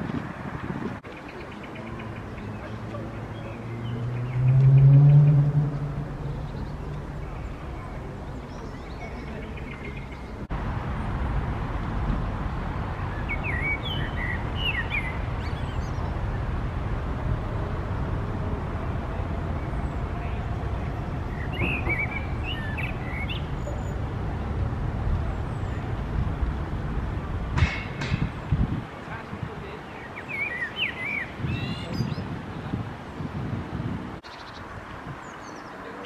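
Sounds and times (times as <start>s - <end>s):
blackbird singing: 1.0s - 10.5s, 13.2s - 16.1s, 19.6s - 24.0s, 29.9s - 32.3s.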